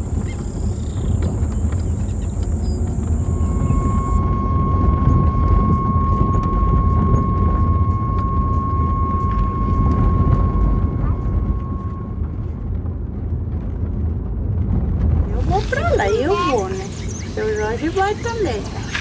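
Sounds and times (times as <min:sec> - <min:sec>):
long steady warning alarm tone: 0:00.0 - 0:12.6
low rumble of wind: 0:00.0 - 0:19.0.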